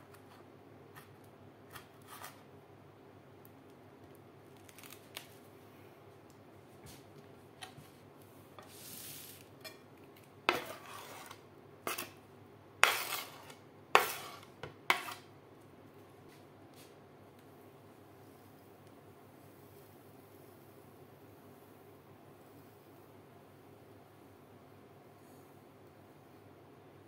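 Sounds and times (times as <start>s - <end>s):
bowl sliding on stone counter: 8.6s - 9.5s, 10.5s - 12.1s, 12.8s - 15.2s.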